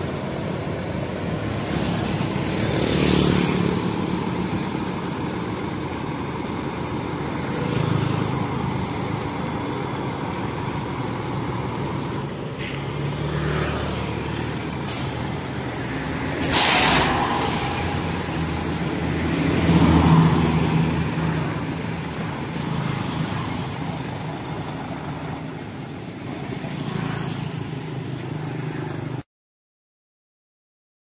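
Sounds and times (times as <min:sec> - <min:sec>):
diesel truck engine running: 0:00.0 - 0:26.9
air brake hiss: 0:12.6 - 0:12.9, 0:14.8 - 0:15.4, 0:16.4 - 0:18.4.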